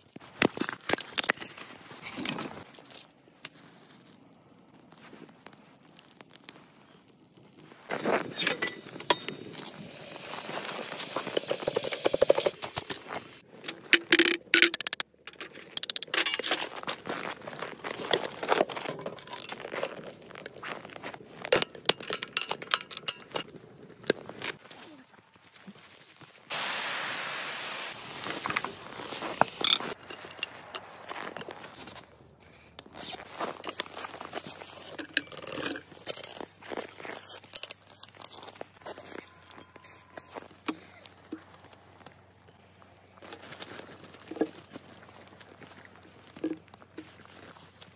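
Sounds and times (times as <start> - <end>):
clicks and crackles: 0.0 - 25.9, 28.2 - 47.9
steady hiss: 26.5 - 29.2.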